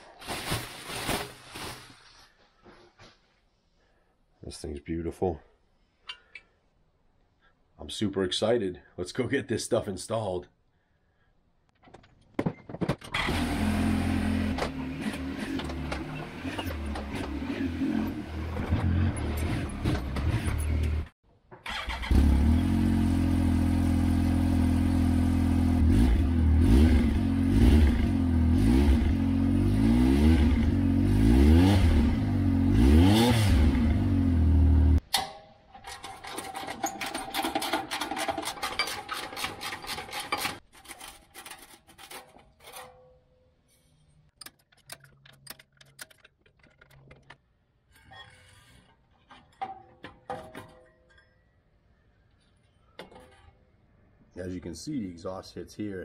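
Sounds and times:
engine idling and revving: 13.2 - 21.1, 21.8 - 35.0
hand tools scraping and clicking: 35.1 - 51.4.

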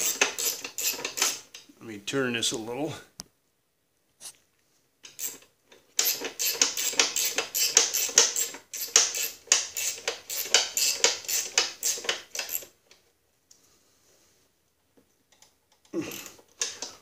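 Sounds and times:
socket ratchet clicking: 6.0 - 12.7.

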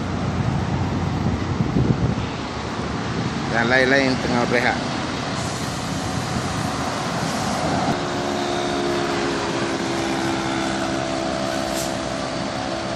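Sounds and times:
truck engine idling: 4.9 - 12.9.

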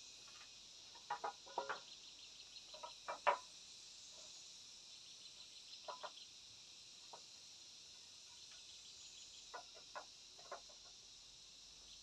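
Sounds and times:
clay roof tiles clinking: 1.0 - 1.9, 2.7 - 3.5.

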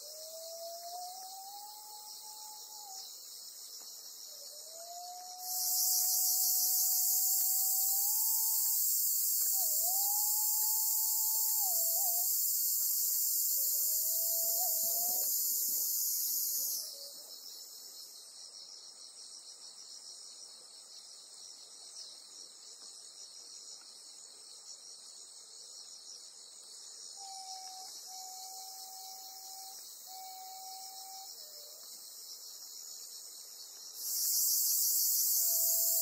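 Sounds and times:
buzzing chorus of insects: 5.2 - 16.9, 34.0 - 36.0.

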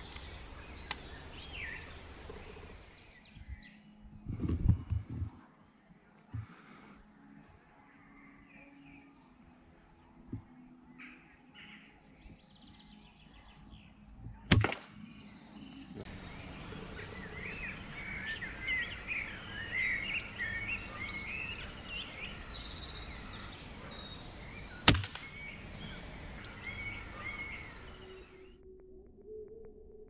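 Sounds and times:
birds singing: 0.0 - 28.6
air rifle shots: 14.5 - 15.0, 24.7 - 26.4.

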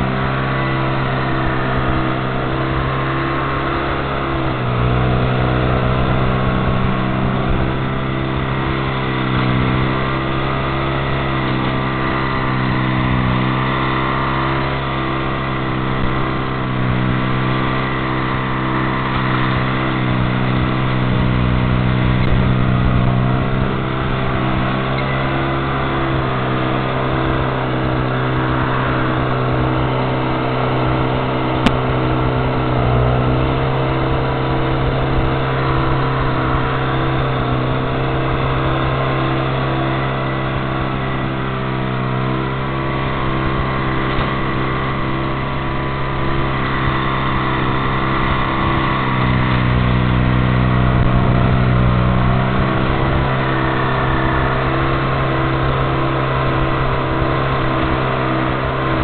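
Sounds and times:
crane engine throbbing: 0.0 - 59.0.

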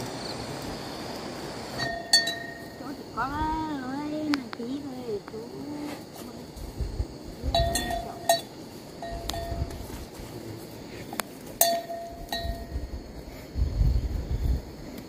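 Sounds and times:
light clinks of hard objects: 1.8 - 2.8, 7.5 - 10.0, 11.1 - 12.8.

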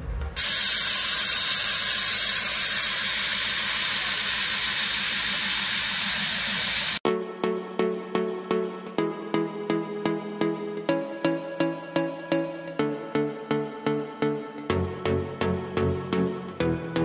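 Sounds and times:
steady hiss: 0.4 - 7.0
electronic music with a beat: 7.0 - 17.0.

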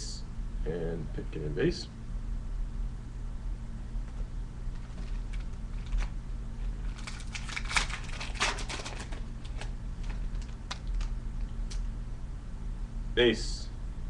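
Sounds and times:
foil wrapper tearing and crinkling: 4.8 - 11.1.

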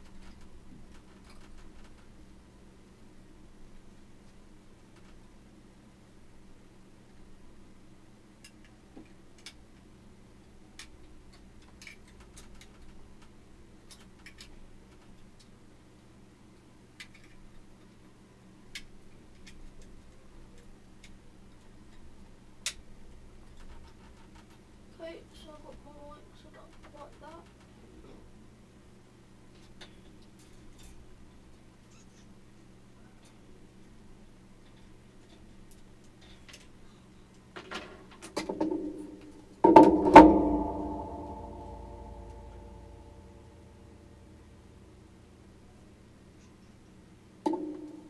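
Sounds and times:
clicks and rustles: 0.0 - 2.2, 10.8 - 15.6, 18.7 - 24.7
low steady hum: 0.0 - 48.0
loud knock: 39.6 - 42.7.

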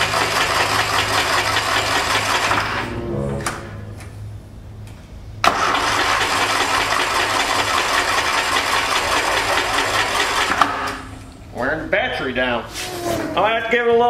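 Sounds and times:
engine cranking on electric starter: 5.4 - 11.0.

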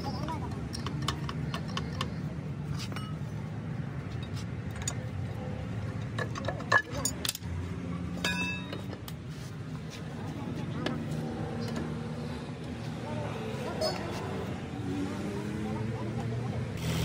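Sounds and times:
metal tools clinking: 2.8 - 3.3, 6.0 - 7.4, 8.2 - 9.0.

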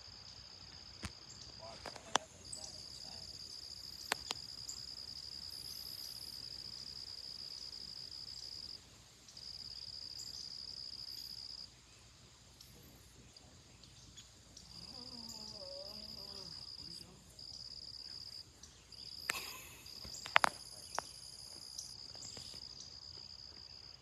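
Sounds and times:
insects trilling: 0.0 - 24.0
sharp clicks: 4.0 - 4.4.

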